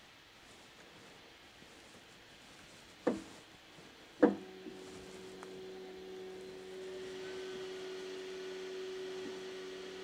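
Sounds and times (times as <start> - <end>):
sharp knocks: 3.0 - 3.3
printer machine hum: 4.2 - 10.0.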